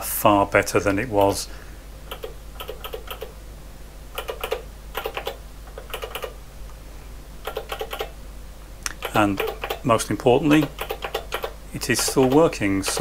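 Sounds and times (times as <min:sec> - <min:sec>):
low steady hum: 0:00.0 - 0:13.0
calculator keys clicking: 0:02.1 - 0:03.3, 0:04.2 - 0:06.4, 0:07.4 - 0:08.1, 0:08.9 - 0:09.9, 0:10.5 - 0:13.0.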